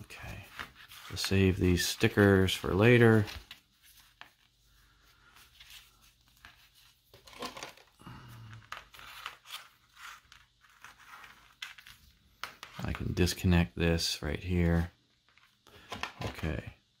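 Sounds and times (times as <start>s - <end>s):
paper rustling: 0.0s - 13.1s.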